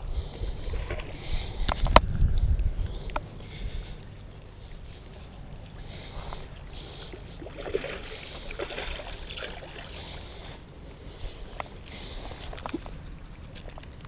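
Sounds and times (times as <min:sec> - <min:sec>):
wind rumble on microphone: 0:00.0 - 0:06.7
fish splashing: 0:03.4 - 0:14.0.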